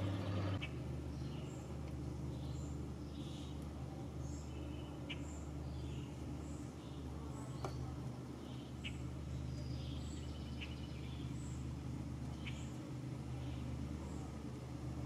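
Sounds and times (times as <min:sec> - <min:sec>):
birds chirping: 0:00.0 - 0:14.4
low steady rumble: 0:00.0 - 0:15.0.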